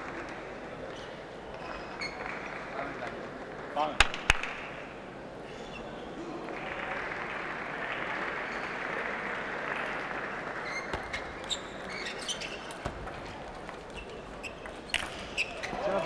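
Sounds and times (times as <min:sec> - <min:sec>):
spectators applauding: 0:06.4 - 0:11.4.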